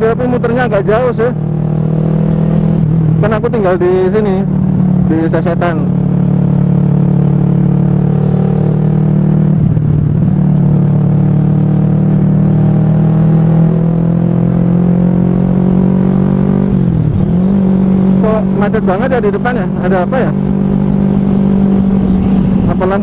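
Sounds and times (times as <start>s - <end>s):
motorcycle engine cruising: 0.0s - 23.0s.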